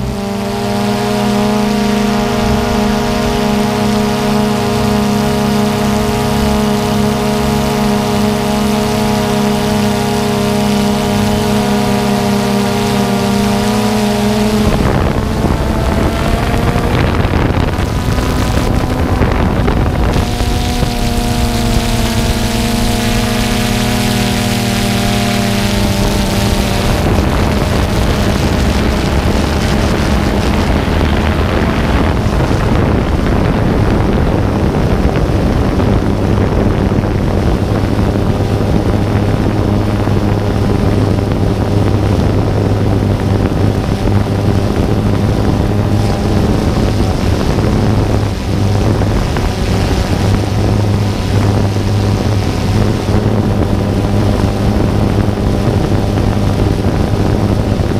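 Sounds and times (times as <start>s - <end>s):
aircraft motor and propeller: 0.0s - 57.9s
wind rushing: 11.5s - 57.9s.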